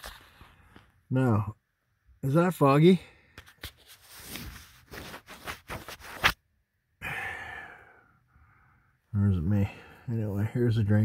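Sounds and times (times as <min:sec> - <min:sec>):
rubbing on microphone: 0:03.4 - 0:06.4
breathy exhale: 0:07.0 - 0:08.9.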